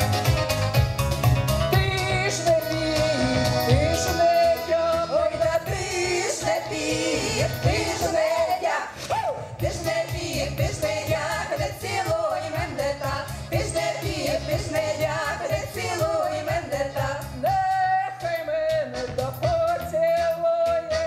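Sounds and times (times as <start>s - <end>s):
instrumental backing with steady beat: 0.0s - 21.0s
women's group singing folk song: 2.1s - 18.6s.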